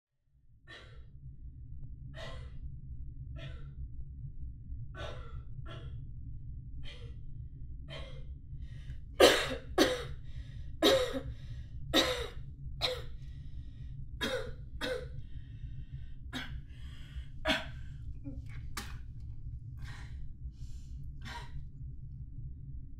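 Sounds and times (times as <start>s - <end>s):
steady low hum: 0.4s - 22.9s
woman breathing heavily: 0.7s - 1.2s, 2.1s - 2.7s, 5.0s - 6.0s, 6.8s - 7.3s, 7.9s - 12.4s, 13.0s - 18.8s, 19.8s - 21.7s.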